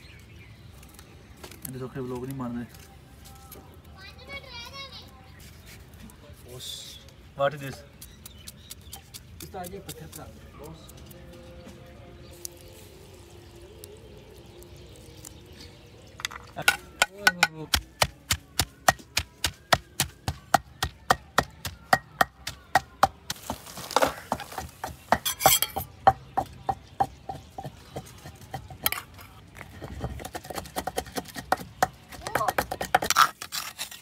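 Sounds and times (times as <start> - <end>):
knife scraping: 25.2 - 25.8, 33.0 - 34.0.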